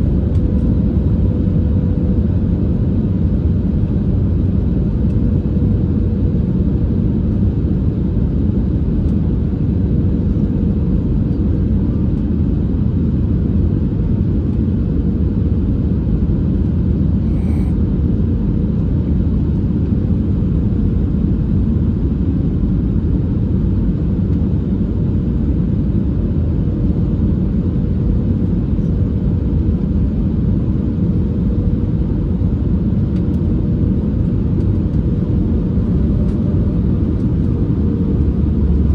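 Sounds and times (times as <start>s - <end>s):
airliner cabin rumble: 0.0s - 38.9s.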